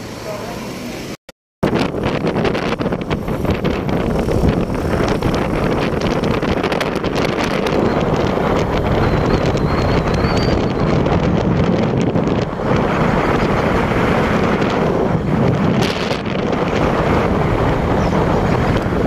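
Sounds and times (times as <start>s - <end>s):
vehicle rumble on road: 0.0s - 19.0s
wind buffeting microphone: 1.6s - 19.0s.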